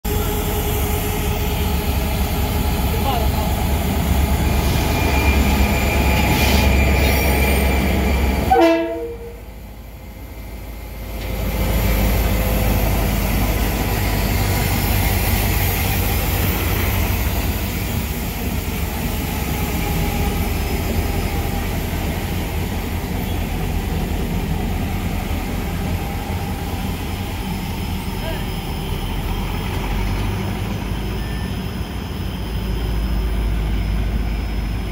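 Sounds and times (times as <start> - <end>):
locomotive horn blast: 8.5 - 9.4.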